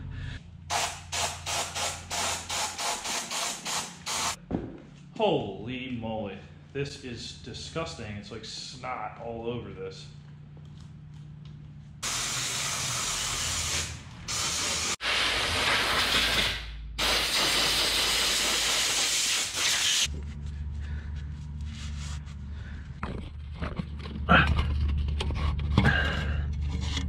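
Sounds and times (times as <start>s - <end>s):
low steady hum: 0.0s - 2.1s, 4.4s - 12.0s, 20.1s - 27.0s
compressed air blow gun hissing: 0.7s - 4.4s, 12.0s - 20.1s.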